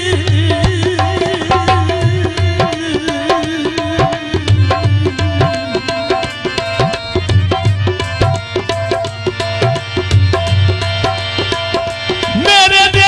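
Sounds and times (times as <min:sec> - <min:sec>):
dholak hand drum beat: 0:00.0 - 0:13.0
harmonium melody: 0:00.0 - 0:13.0.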